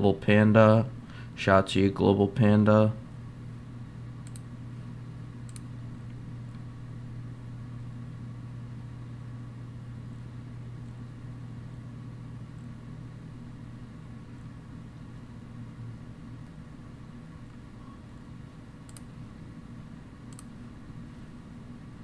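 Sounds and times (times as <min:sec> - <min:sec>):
low mechanical hum: 0:00.0 - 0:22.0
faint clicks: 0:04.2 - 0:04.5, 0:05.4 - 0:06.6, 0:18.9 - 0:19.1, 0:20.3 - 0:20.5.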